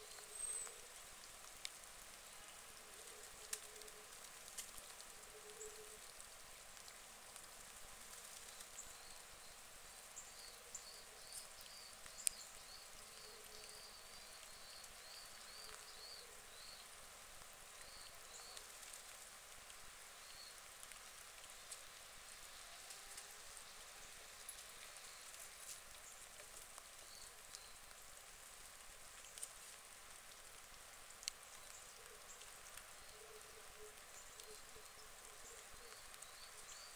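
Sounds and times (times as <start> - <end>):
faint outdoor hiss: 0.0 - 36.9
light ticks: 0.1 - 2.1, 2.8 - 36.9.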